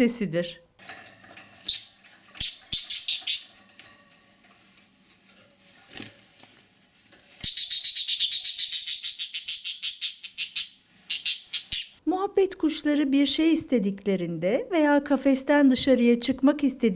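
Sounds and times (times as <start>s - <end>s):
budgerigar panic calls: 7.4s - 12.0s.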